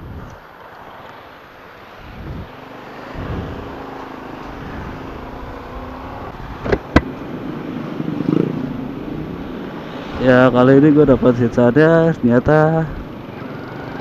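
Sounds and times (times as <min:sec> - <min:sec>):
road and wind noise: 0:00.0 - 0:14.0
scooter engine accelerating: 0:02.2 - 0:10.9, 0:13.0 - 0:14.0
sharp knocks: 0:06.6 - 0:07.1.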